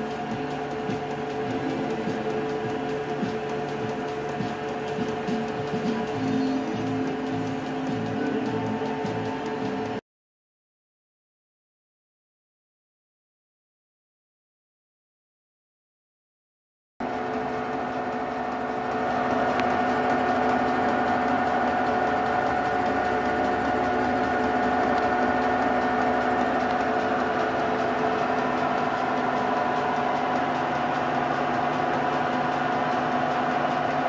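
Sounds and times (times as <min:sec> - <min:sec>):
milling machine hum and whine: 0:00.0 - 0:10.0, 0:17.0 - 0:34.0.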